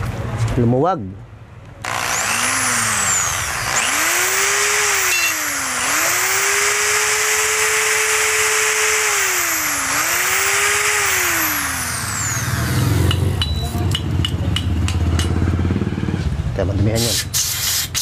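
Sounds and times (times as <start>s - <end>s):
electric drill motor: 1.8s - 13.3s.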